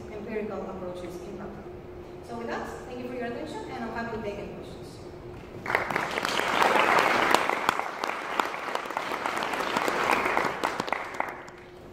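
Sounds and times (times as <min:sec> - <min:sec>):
audience applauding: 0:05.6 - 0:11.8.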